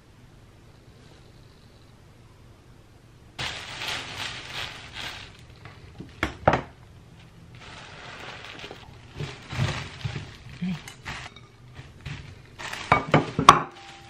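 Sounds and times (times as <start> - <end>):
plastic bag crinkling: 3.4 - 6.5, 7.2 - 14.0.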